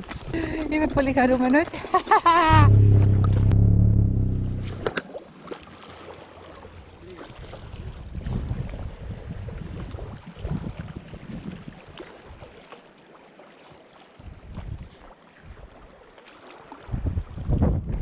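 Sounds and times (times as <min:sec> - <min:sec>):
wind buffeting microphone: 0:02.5 - 0:04.9, 0:06.8 - 0:12.4, 0:16.9 - 0:18.0.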